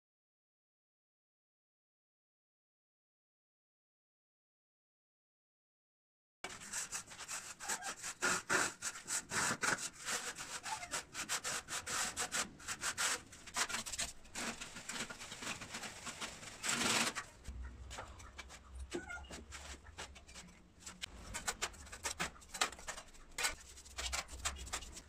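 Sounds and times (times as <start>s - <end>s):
trowel scraping wet mortar: 6.6s - 25.0s.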